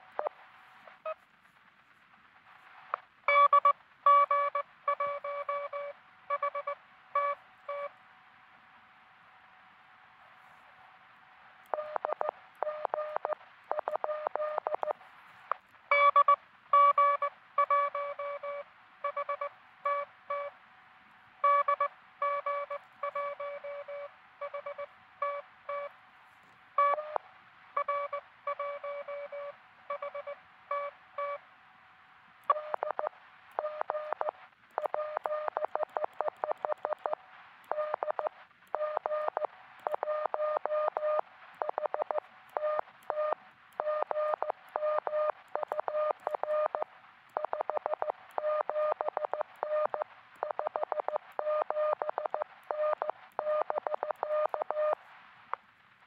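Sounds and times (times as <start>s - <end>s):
receiver hiss: 0.0s - 56.0s
morse code tones: 27.8s - 31.4s, 47.4s - 55.0s.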